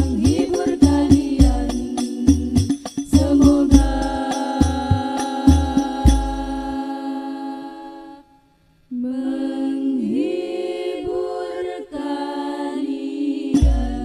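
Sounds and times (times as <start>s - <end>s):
drum beat: 0.0s - 6.7s, 13.6s - 14.0s
woman singing ornamented vocal: 0.0s - 14.0s.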